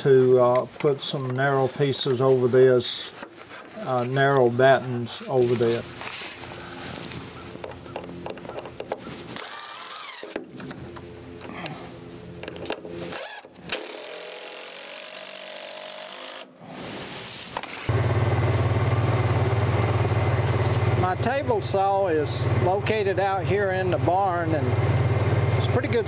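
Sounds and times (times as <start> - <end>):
cordless drill driving screws: 9.4 - 10.5, 13.1 - 16.5
utility vehicle engine running: 17.9 - 26.0.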